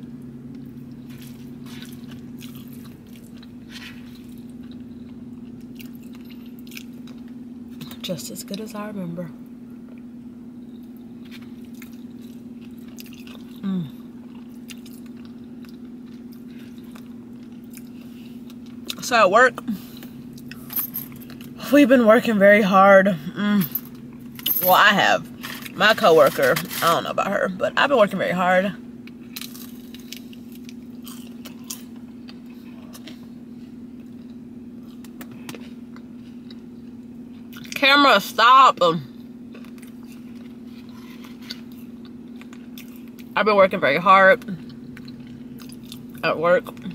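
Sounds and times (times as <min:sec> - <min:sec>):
steady low hum: 0:00.0 - 0:46.9
person chewing food: 0:00.5 - 0:07.4, 0:10.9 - 0:19.0, 0:29.0 - 0:37.8, 0:39.2 - 0:43.4, 0:44.6 - 0:46.2
person humming mm of enjoyment: 0:13.6 - 0:14.0.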